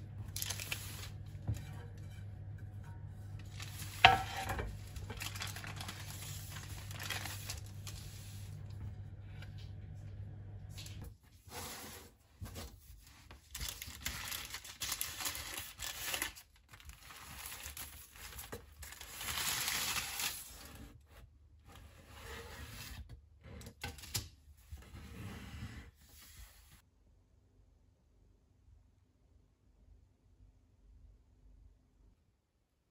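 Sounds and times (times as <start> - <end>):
low hum: 0.0 - 11.1
parchment paper rustling: 0.1 - 2.0, 3.1 - 9.7, 10.7 - 21.0.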